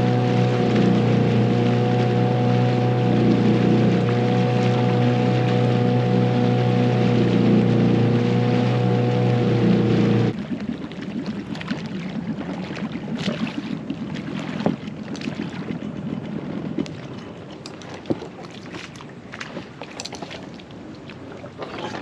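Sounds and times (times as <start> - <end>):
loud steady drone: 0.0 - 10.3
water lapping against dinghy: 0.0 - 22.0.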